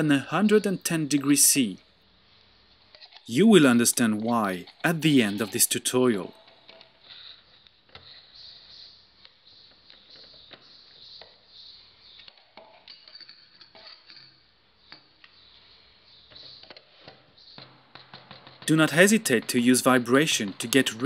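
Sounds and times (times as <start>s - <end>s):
spatula scraping paste: 2.6s - 10.1s.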